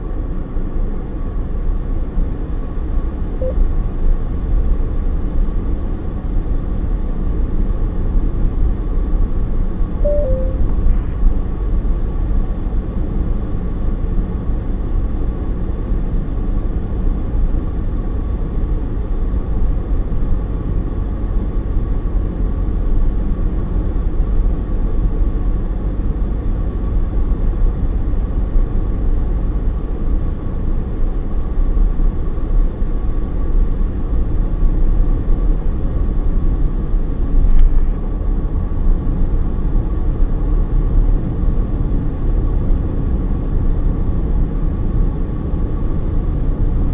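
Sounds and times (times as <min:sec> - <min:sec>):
car tyre and road noise: 0:00.0 - 0:46.9
faint steady whine: 0:03.2 - 0:05.1, 0:10.0 - 0:11.4.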